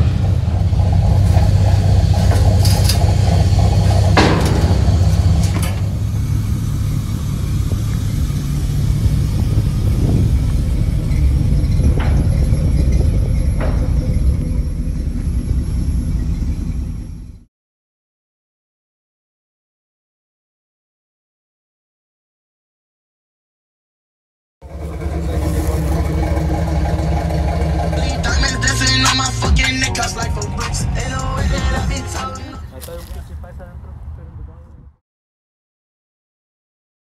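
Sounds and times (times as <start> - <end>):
vehicle engine idling: 0.0 - 17.5, 24.6 - 34.6.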